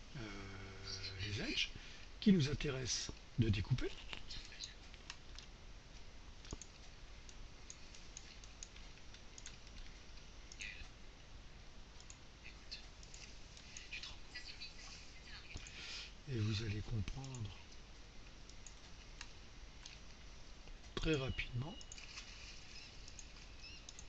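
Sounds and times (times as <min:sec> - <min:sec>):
computer mouse clicks: 0:04.1 - 0:10.9, 0:11.9 - 0:12.2, 0:12.8 - 0:14.2, 0:15.5 - 0:15.8, 0:17.0 - 0:17.6, 0:18.4 - 0:21.2, 0:21.8 - 0:24.0.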